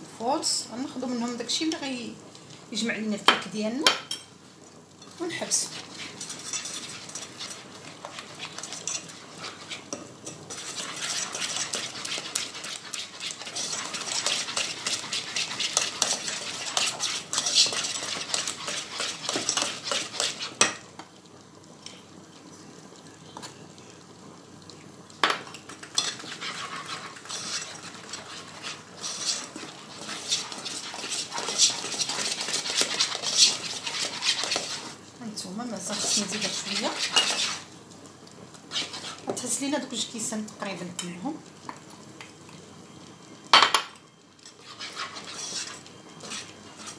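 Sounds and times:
whisk scraping metal saucepan: 0:05.6 - 0:20.7, 0:25.9 - 0:35.0, 0:35.9 - 0:37.7, 0:38.7 - 0:39.4, 0:44.4 - 0:46.9
whisk knocking on pan: 0:10.6 - 0:20.8.

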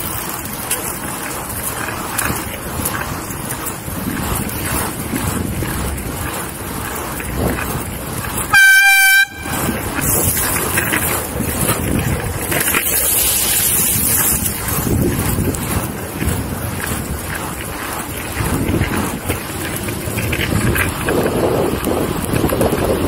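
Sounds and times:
board rolling noise: 0:00.0 - 0:23.0
wind: 0:00.0 - 0:23.0
loud air horn blast: 0:08.5 - 0:09.7.

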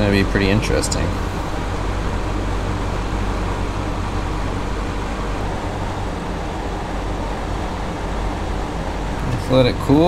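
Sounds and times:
mechanical hum with rushing noise: 0:00.0 - 0:10.0.

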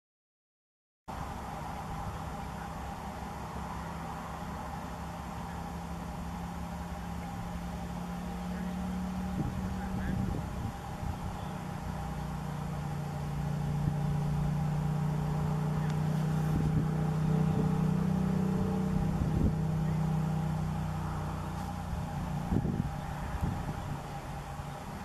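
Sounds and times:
distant engine droning: 0:01.1 - 0:25.0.

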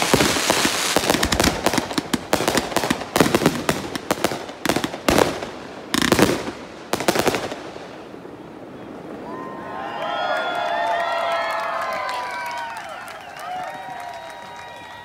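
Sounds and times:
fireworks bangs and crackling: 0:00.0 - 0:10.1.

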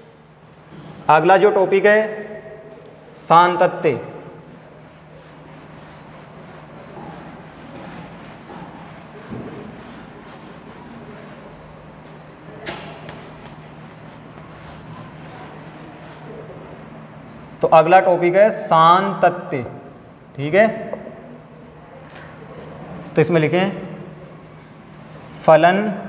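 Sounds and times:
duster rubbing on whiteboard: 0:04.2 - 0:16.4.

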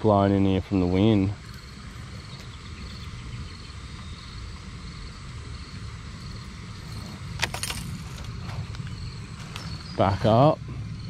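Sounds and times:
faint high chirping: 0:01.4 - 0:07.2.

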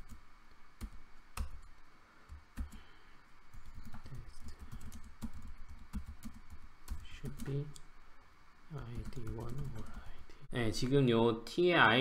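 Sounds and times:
computer keyboard typing: 0:00.8 - 0:01.6, 0:02.3 - 0:02.9, 0:03.5 - 0:07.8, 0:08.8 - 0:10.2.

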